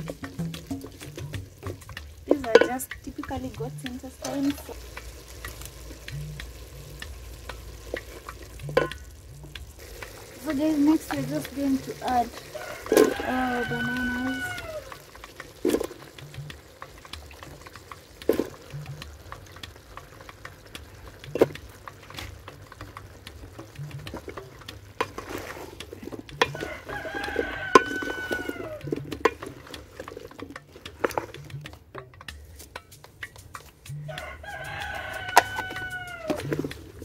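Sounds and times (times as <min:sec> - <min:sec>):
pieces dropped into metal pot: 0:00.0 - 0:05.7, 0:07.5 - 0:09.2, 0:17.4 - 0:18.7
wooden spoon knocking in pot: 0:00.0 - 0:37.0
rooster crowing: 0:12.4 - 0:15.1, 0:26.4 - 0:29.0, 0:34.0 - 0:36.7.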